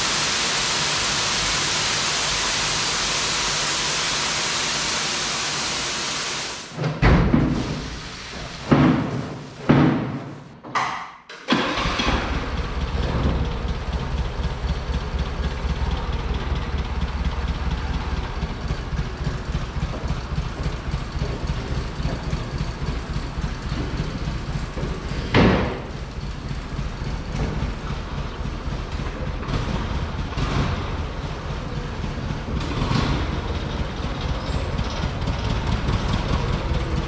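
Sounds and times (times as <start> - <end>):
engine starting and idling: 11.3 - 37.0.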